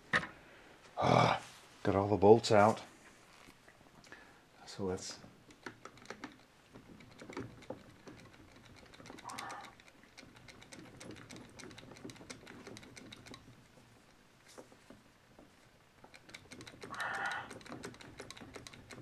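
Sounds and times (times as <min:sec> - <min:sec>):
small clicks of metal parts: 0:05.4 - 0:19.0.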